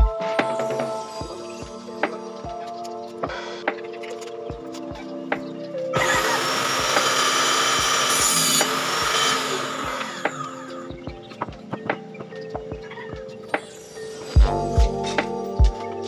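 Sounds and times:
background music with a beat: 0.0s - 16.0s
power tool cutting wood: 6.0s - 10.7s.

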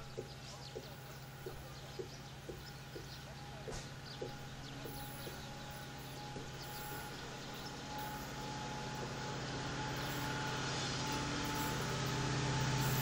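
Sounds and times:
birds chirping: 0.0s - 8.4s
distant locomotive hum: 0.0s - 13.0s.

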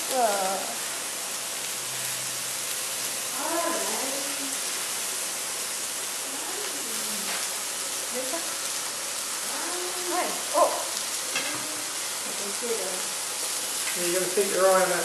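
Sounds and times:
meat sizzling on a grill: 0.0s - 15.0s.

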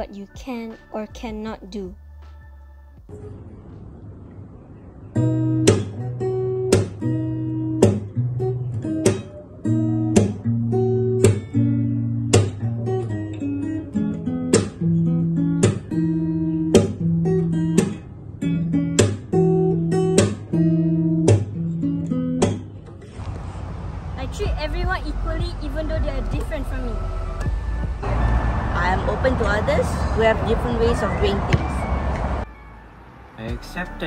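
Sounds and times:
fingerstyle acoustic guitar: 5.2s - 23.2s.

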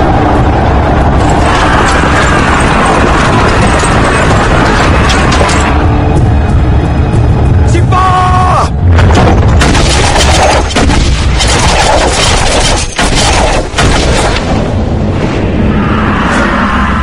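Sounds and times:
heavy booms and impacts: 8.7s - 15.7s.

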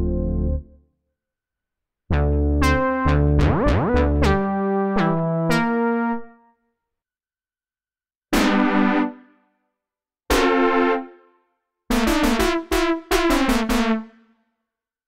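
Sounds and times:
synthesizer brass chords: 2.1s - 6.4s, 8.4s - 9.2s, 10.3s - 11.2s, 11.9s - 14.1s.

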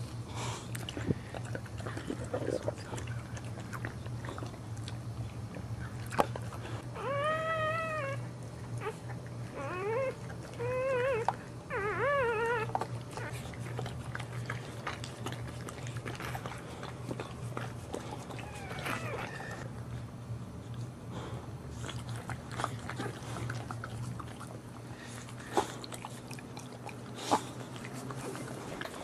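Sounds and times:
low steady hum: 0.0s - 29.0s
puppy crying in high squeals: 7.0s - 8.2s, 18.4s - 19.6s.

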